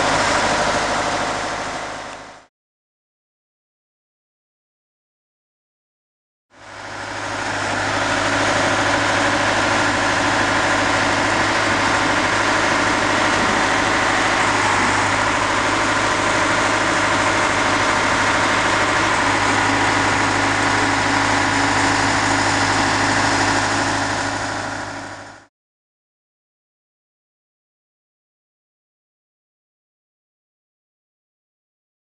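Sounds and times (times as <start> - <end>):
heavy engine running: 0.0 - 2.5, 6.6 - 25.5.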